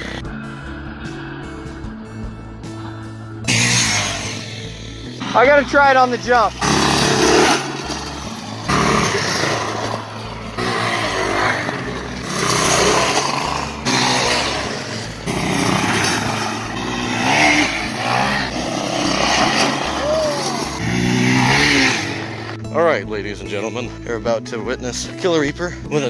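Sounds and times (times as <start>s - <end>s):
go-kart engine surging: 0.0s - 0.3s, 3.4s - 22.6s.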